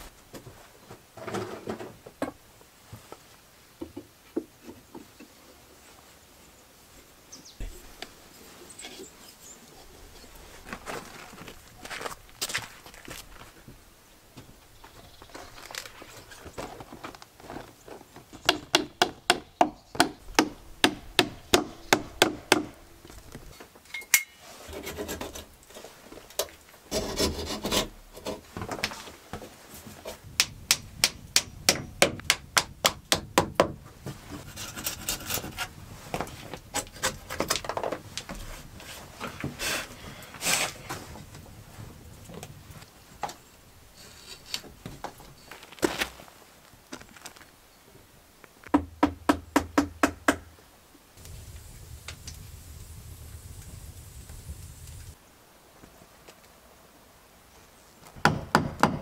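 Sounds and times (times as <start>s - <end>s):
hammer striking nails into wood: 18.5s - 22.8s, 30.4s - 33.8s, 58.2s - 59.0s.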